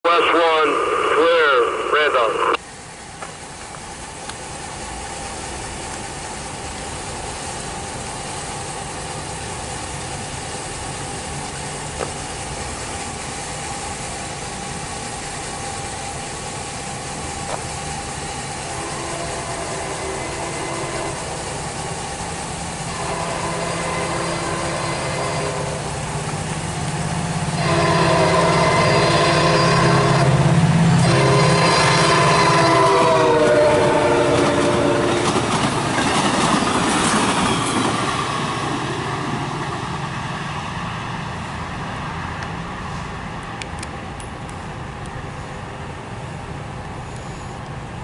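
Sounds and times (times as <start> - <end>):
outdoor background noise: 0.0 - 48.0
train approaching: 0.0 - 48.0
train horn long tones: 18.6 - 21.8, 22.8 - 26.2, 27.1 - 35.5.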